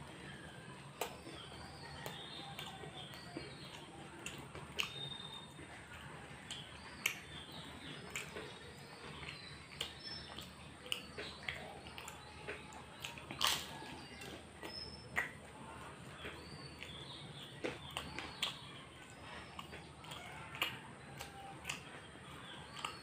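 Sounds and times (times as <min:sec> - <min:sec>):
crunchy food being chewed: 0:00.0 - 0:23.0
wet mouth smacks: 0:04.2 - 0:05.0, 0:14.6 - 0:15.4.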